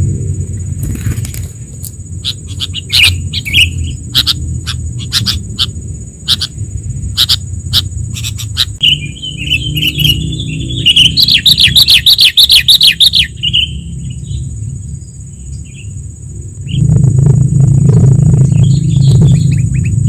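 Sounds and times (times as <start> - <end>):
low rumble: 0.0 - 10.7, 13.7 - 20.0
steady high-pitched whine: 0.0 - 20.0
bird chattering chirps: 2.0 - 14.5, 18.4 - 20.0.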